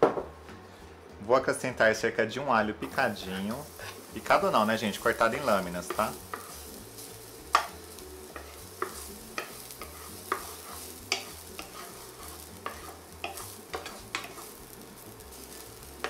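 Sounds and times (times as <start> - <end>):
garlic sizzling in oil: 2.8 - 16.0
wooden spoon scraping pan: 3.1 - 7.7, 8.3 - 14.6.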